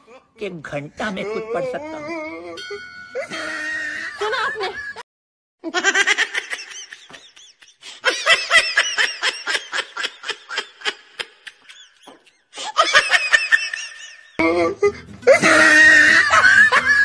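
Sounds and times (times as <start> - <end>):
high-pitched laughing: 5.7 - 17.0.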